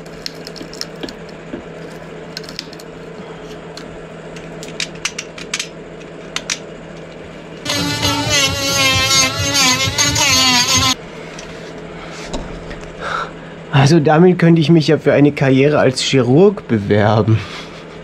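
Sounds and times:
glass tube cracking and snapping: 0.0 - 1.4
handheld power tool whining: 7.6 - 11.0.

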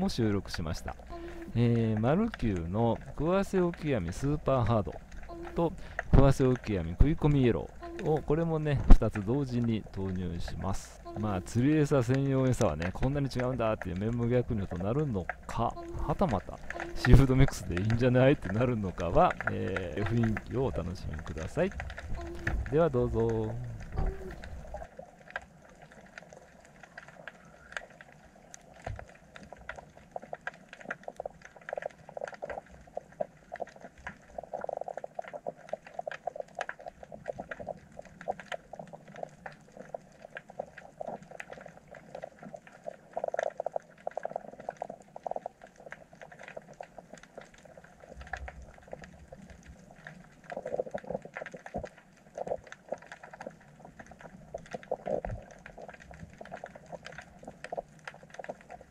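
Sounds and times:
underwater crackle of clicks and pops: 0.0 - 58.9.

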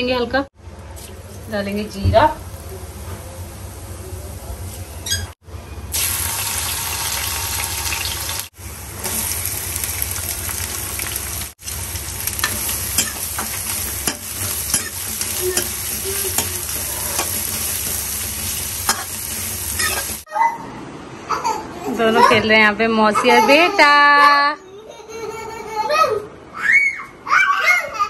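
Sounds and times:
food sizzling in hot oil: 5.9 - 20.3
metal ladle scraping pan: 12.4 - 20.2.

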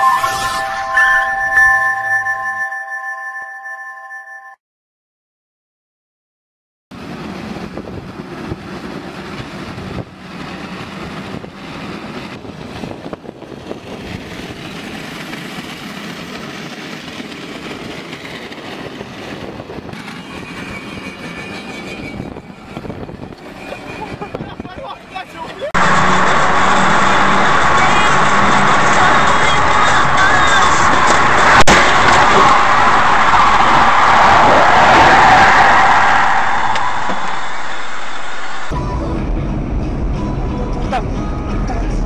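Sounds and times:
metal scraping along road: 20.0 - 32.9.

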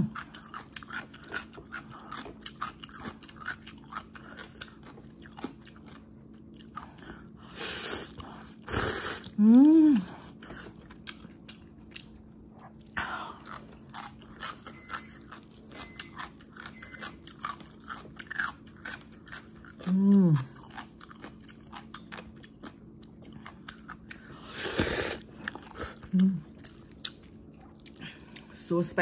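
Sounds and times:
crunching and chewing: 0.0 - 28.6
person humming: 9.0 - 10.2, 19.8 - 20.5, 26.1 - 26.4.

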